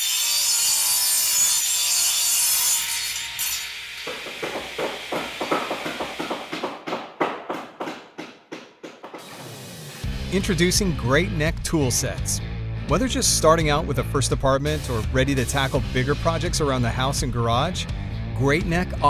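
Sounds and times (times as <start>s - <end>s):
saw cutting: 0.0s - 10.1s, 14.2s - 16.8s.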